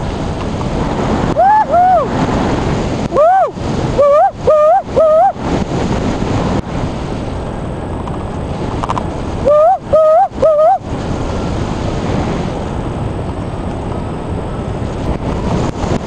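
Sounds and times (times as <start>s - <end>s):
wind rushing over microphone: 0.0s - 16.0s
short high-pitched rising tones: 3.2s - 5.4s, 9.5s - 10.8s.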